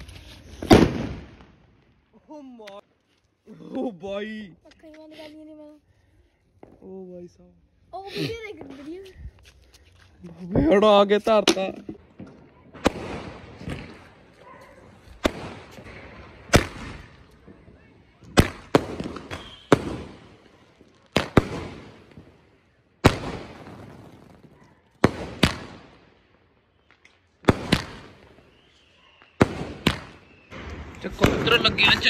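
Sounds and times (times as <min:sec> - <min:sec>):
firework bangs: 0:00.4 - 0:01.8, 0:11.9 - 0:26.1, 0:26.9 - 0:32.0.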